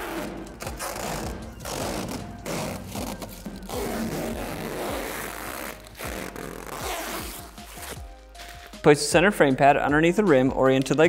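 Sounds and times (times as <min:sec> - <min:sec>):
plastic film being peeled: 0:00.0 - 0:08.8.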